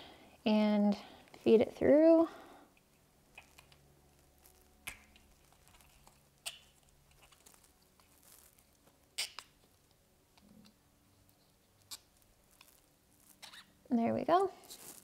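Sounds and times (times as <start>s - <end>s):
rubber scratching and rubbing: 3.3s - 9.9s, 10.5s - 13.8s, 14.6s - 15.0s.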